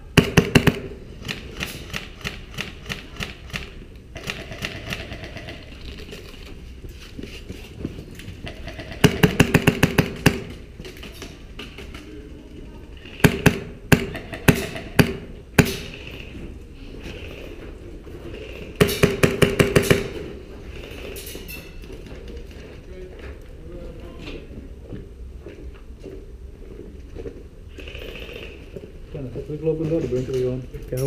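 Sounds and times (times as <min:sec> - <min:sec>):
airsoft rifle shots: 0:00.1 - 0:05.7, 0:08.4 - 0:10.6, 0:13.1 - 0:16.3, 0:18.8 - 0:20.3.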